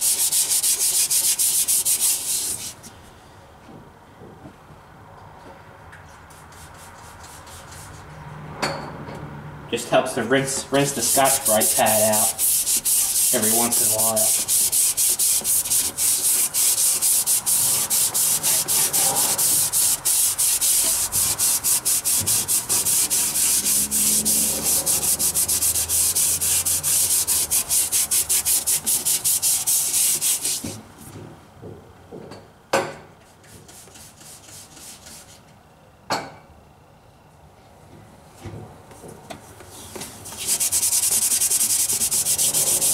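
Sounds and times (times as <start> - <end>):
scouring pad rubbing metal: 0.0 - 2.8, 10.8 - 30.7, 40.2 - 42.9.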